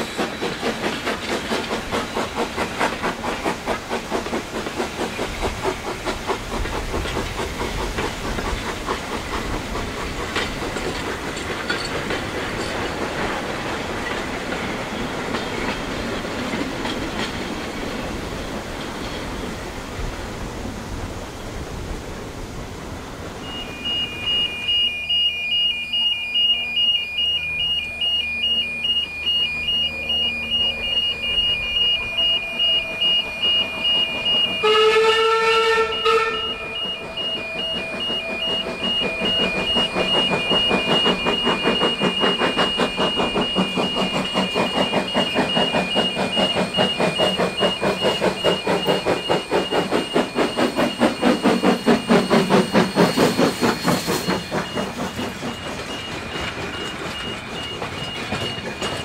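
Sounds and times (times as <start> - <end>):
steam locomotive chuffing: 0.0 - 59.0
steam whistle blast: 23.4 - 44.2.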